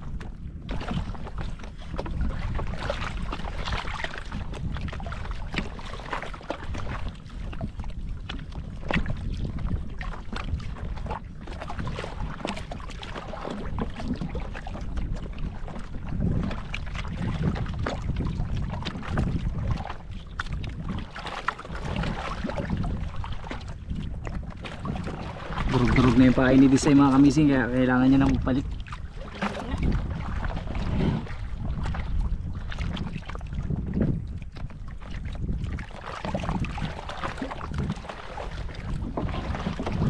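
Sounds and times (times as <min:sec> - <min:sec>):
small waves lapping against a hull: 0:00.0 - 0:40.0
wind rumbling on microphone: 0:00.0 - 0:40.0.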